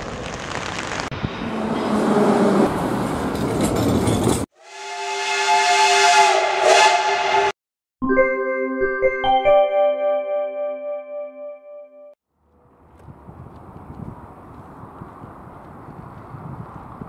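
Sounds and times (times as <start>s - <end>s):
metro train rumbling: 1.2s - 7.5s
steam locomotive whistle: 4.6s - 7.6s.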